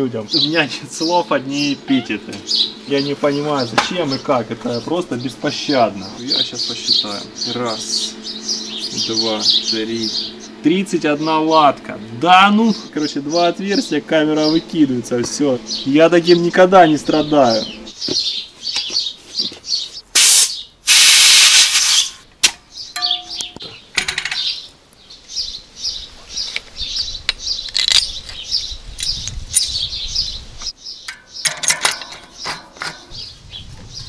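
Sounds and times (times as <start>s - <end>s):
small birds chirping: 0.0s - 20.8s, 21.8s - 34.0s
loud hiss: 20.1s - 22.3s
scattered clicks and knocks: 31.1s - 33.1s.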